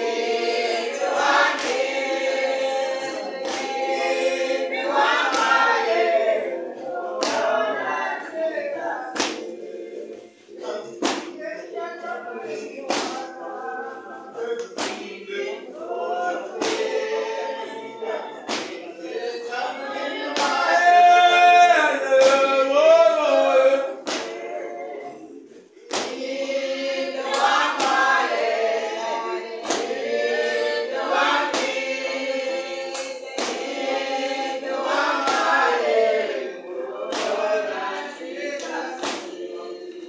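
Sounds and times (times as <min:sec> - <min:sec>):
sharp percussive beats: 0:00.0 - 0:07.9, 0:09.1 - 0:09.7, 0:10.6 - 0:11.6, 0:12.5 - 0:15.3, 0:16.4 - 0:17.7, 0:18.3 - 0:19.2, 0:24.0 - 0:24.6, 0:25.9 - 0:26.6, 0:27.2 - 0:32.3, 0:32.9 - 0:36.0, 0:37.0 - 0:37.7, 0:38.6 - 0:40.0
congregation singing: 0:00.0 - 0:40.0.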